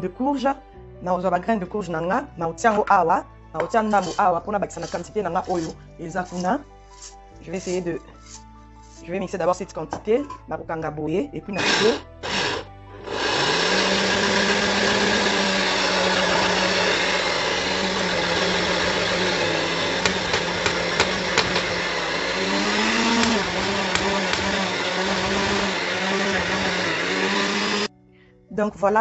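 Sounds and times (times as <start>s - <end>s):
blender grinding seeds: 4.8s - 9.0s, 11.6s - 27.9s.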